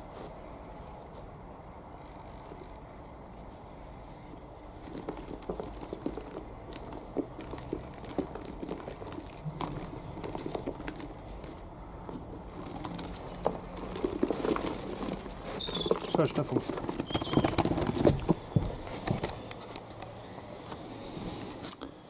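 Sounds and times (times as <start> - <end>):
small bird calling: 3.5 - 4.7, 6.7 - 11.2, 12.1 - 12.6, 14.4 - 18.5.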